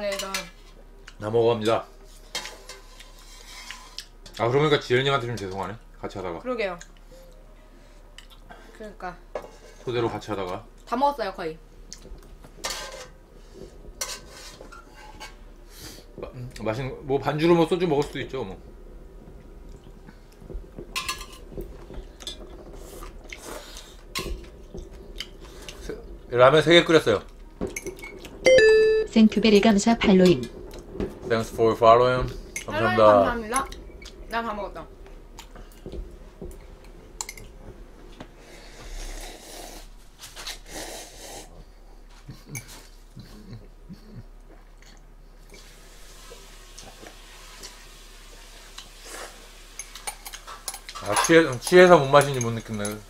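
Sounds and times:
rustling and rubbing: 17.6 - 28.4, 29.6 - 43.1.

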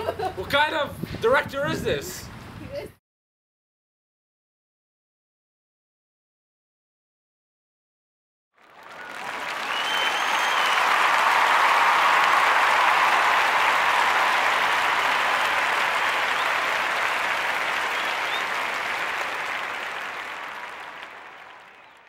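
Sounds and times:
applause: 8.6 - 22.0.

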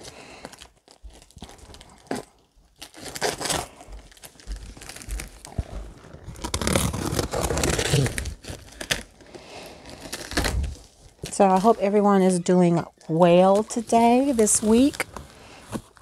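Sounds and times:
cardboard crinkling: 0.0 - 16.0
tape tearing: 0.5 - 3.8, 4.7 - 11.7
knife slitting packing tape: 2.8 - 3.7, 6.4 - 9.2.

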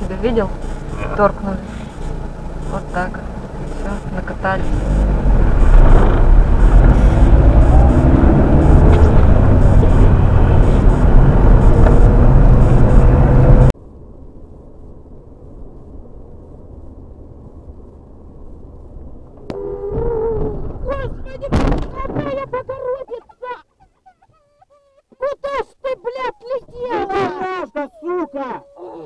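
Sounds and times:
muffled low hum: 0.0 - 22.6
road and wind noise: 0.0 - 23.2.

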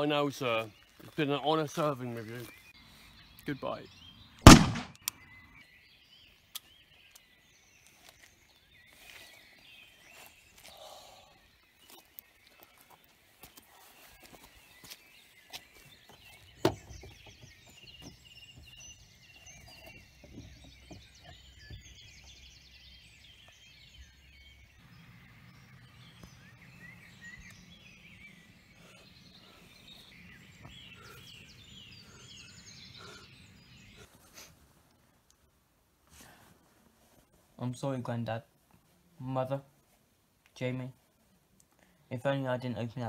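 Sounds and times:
birds chirping and singing: 0.0 - 34.5
sharp bang: 4.5 - 5.0.

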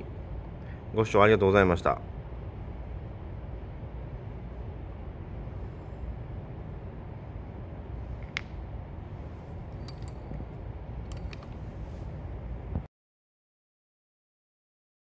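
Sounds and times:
low background rumble: 0.0 - 12.9
metal parts clicking: 9.7 - 11.6.

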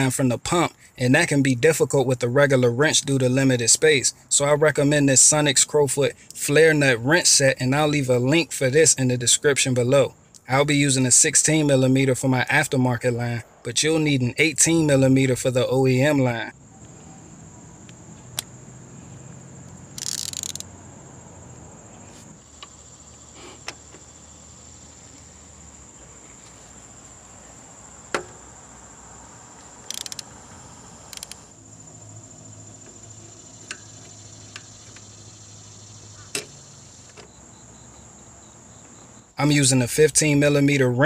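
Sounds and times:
crickets trilling: 0.0 - 40.8
wrench clicking on metal: 19.9 - 20.7, 29.8 - 30.3, 31.1 - 31.4.

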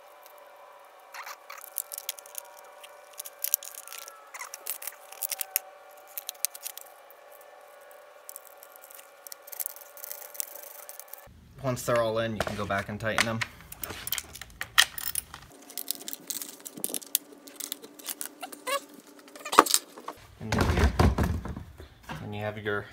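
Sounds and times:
bolts and nuts clicking and rattling: 13.1 - 18.3.

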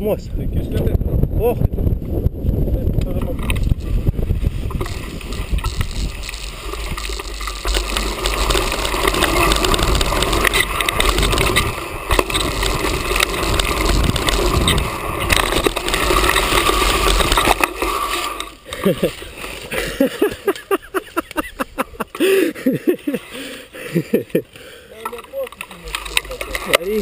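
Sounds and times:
wind rumbling on microphone: 0.0 - 18.3
bike tyre noise: 0.9 - 27.0
bike knocks and rattles: 3.0 - 19.2.

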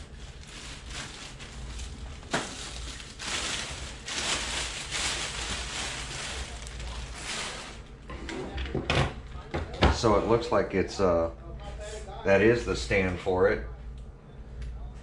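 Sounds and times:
plastic bag rustling: 0.0 - 8.1.

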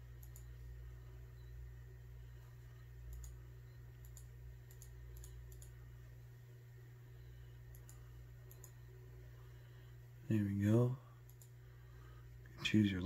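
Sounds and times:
steady low hum: 0.0 - 13.0
computer mouse clicks: 0.1 - 0.6, 3.0 - 3.4, 4.0 - 5.8, 7.6 - 8.8, 11.2 - 11.6.

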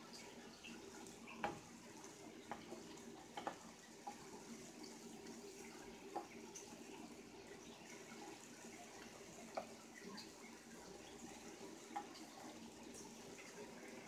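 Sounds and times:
sauce bubbling and sizzling: 0.0 - 14.0.

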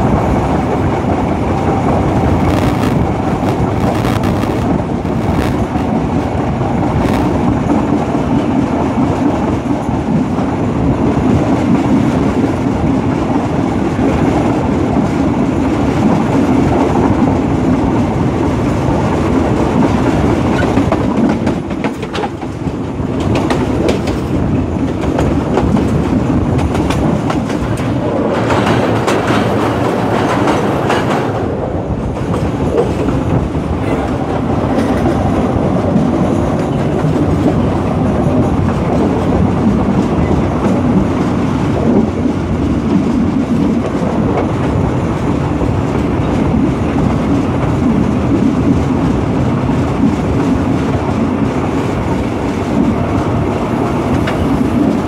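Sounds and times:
diesel locomotive engine running: 0.0 - 55.0
wheels clacking over rail joints: 19.1 - 48.8.

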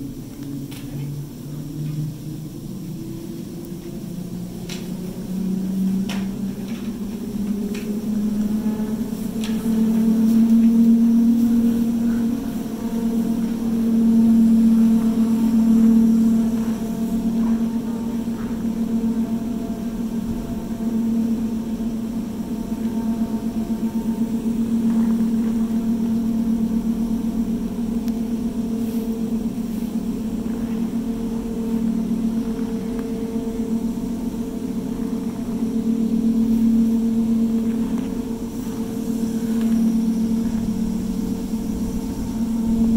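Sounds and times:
low throbbing hum of cable: 0.0 - 42.9.

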